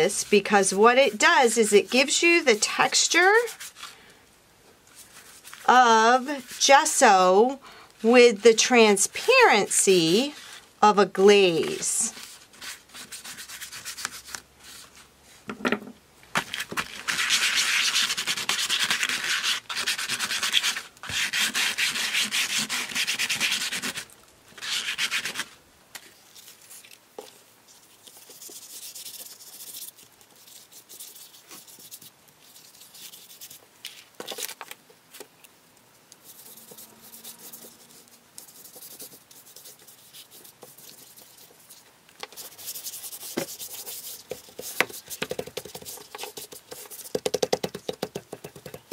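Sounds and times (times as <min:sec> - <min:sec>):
paintbrush scrubbing paper: 0:00.0 - 0:03.9, 0:04.9 - 0:07.3, 0:11.6 - 0:15.1, 0:16.8 - 0:25.5, 0:26.1 - 0:34.0, 0:36.2 - 0:48.0.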